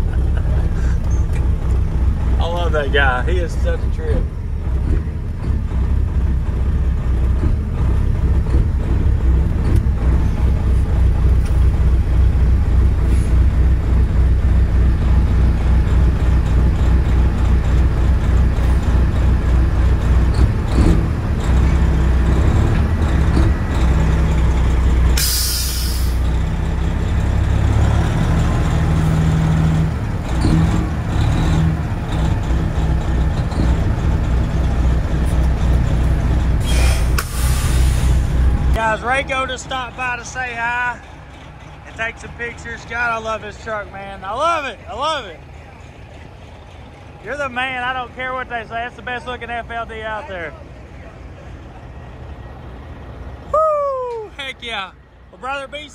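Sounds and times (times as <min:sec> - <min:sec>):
diesel truck engine running: 0:00.0 - 0:55.9
air brake hiss: 0:25.2 - 0:26.2, 0:36.6 - 0:38.3.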